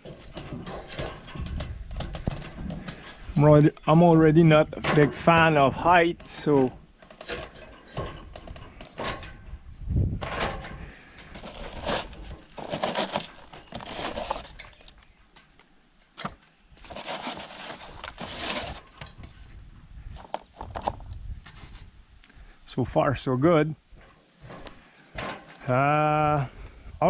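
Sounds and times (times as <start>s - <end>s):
clanks on metal ladder rungs: 0.0s - 14.8s
rustling: 0.0s - 22.0s.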